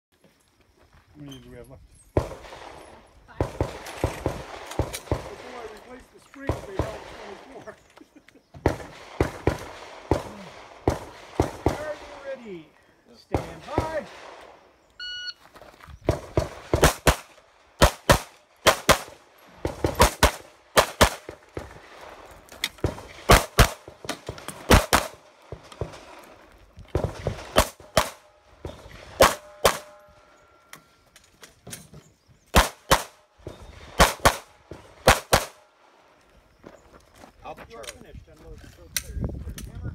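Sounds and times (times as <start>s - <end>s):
pistol shots: 2.2s - 5.8s, 8.6s - 12.3s, 16.1s - 21.8s, 22.8s - 26.0s, 26.9s - 30.1s, 32.5s - 33.2s, 33.8s - 35.7s
short ringing tone: 15.0s - 15.4s
shot timer beep: 15.0s - 15.4s.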